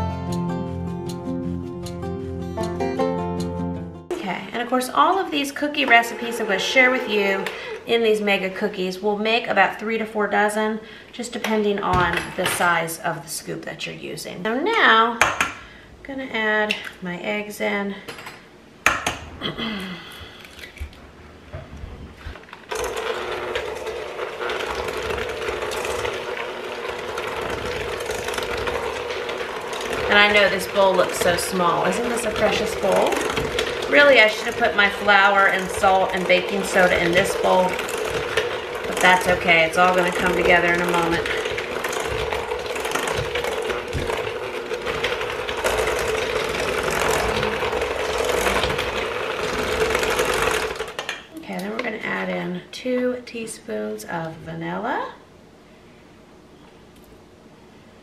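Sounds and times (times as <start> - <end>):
electric hand mixer whine: 5.0 - 8.9, 21.8 - 51.1
beaters rattling against bowl: 22.7 - 51.2.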